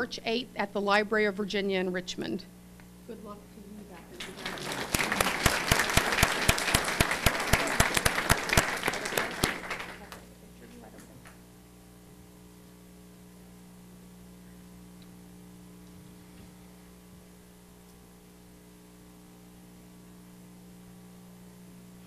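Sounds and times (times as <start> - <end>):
low electrical hum: 0.0 - 22.0
audience applauding: 4.1 - 10.3.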